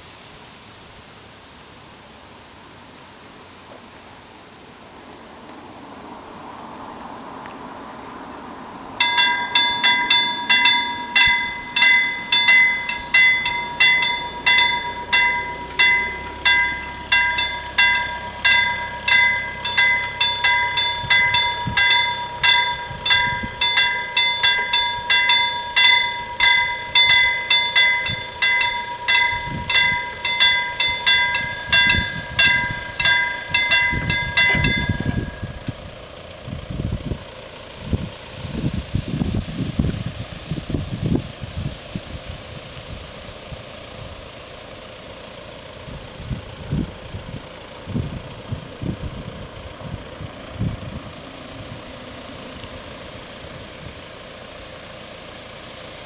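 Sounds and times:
level-crossing warning bells: 9.0s - 36.2s.

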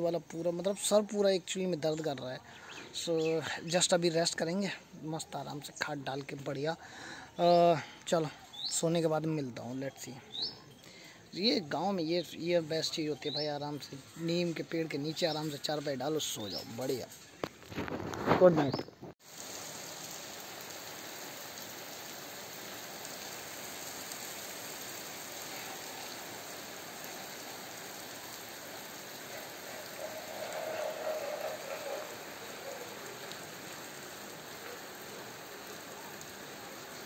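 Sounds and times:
heavy rain on concrete: 19.2s - 37.0s.

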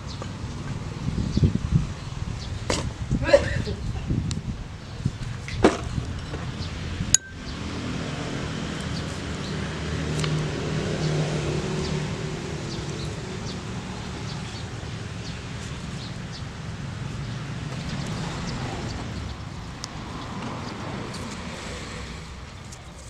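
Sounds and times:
vehicle engine passing: 6.4s - 23.0s.

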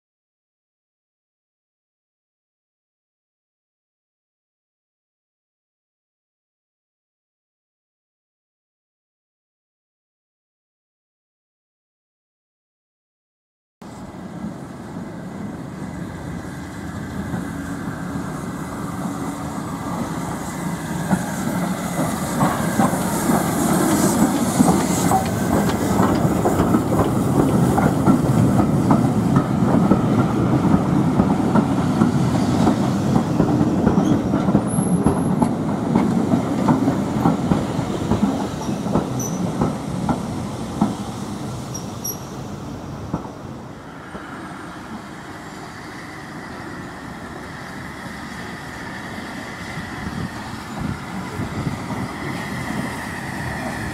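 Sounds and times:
train wheels clicking over rail joints: 19.9s - 42.3s.

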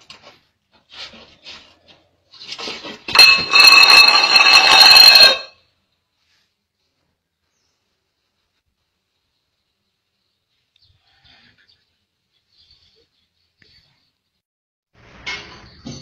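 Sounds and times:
electric alarm ringing: 3.2s - 5.5s.

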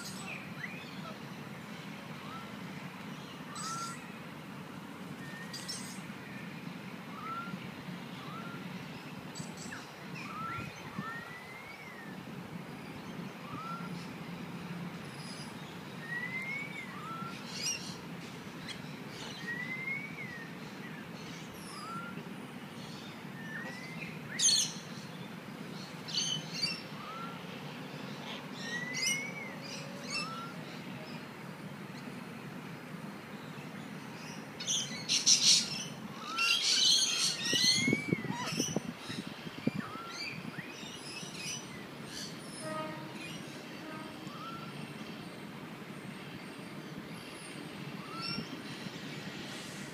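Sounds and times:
bird whistled note: 13.5s - 13.9s, 43.8s - 44.8s.

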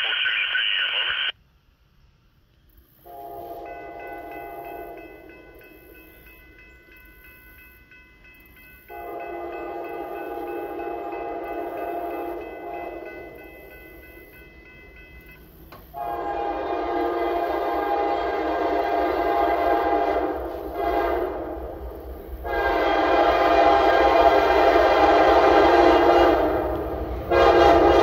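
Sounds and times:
locomotive air horn blasts: 3.0s - 5.2s, 8.9s - 13.1s, 16.0s - 28.0s
railroad crossing bell ringing: 3.1s - 16.5s.

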